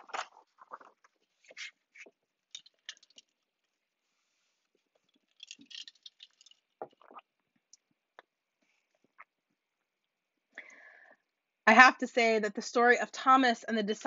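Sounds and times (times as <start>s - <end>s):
sipping and swallowing water: 4.6s - 9.4s.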